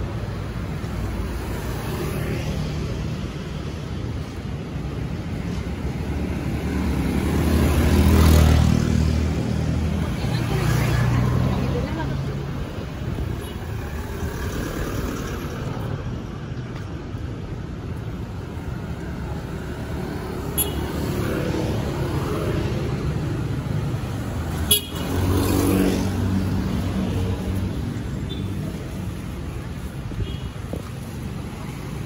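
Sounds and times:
street traffic passing: 0.0 - 32.0
vehicle horn: 20.6 - 20.8, 24.7 - 25.1.

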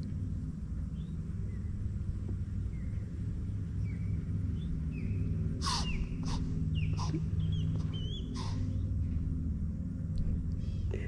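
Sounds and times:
steady low rumble: 0.0 - 11.0
deer snorting in alarm: 5.6 - 8.9.

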